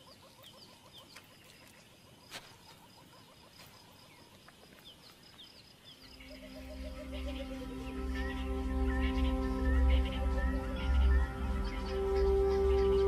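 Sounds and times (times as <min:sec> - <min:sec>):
bird chirping: 0:00.0 - 0:13.0
soft music: 0:06.0 - 0:13.0
steady high tone: 0:06.2 - 0:13.0.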